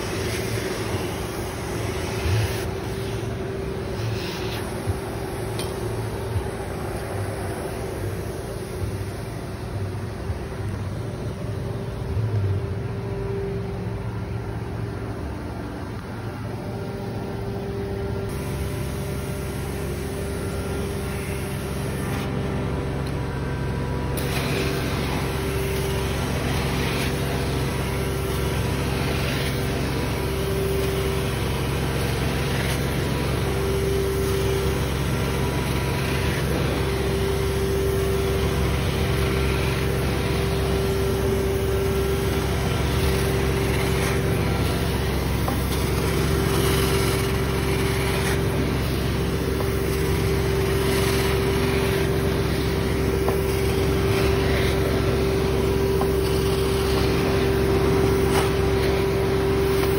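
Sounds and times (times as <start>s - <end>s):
carpet extraction wand spraying: 0.0s - 8.8s, 24.2s - 59.9s
extraction machine droning: 0.0s - 59.9s.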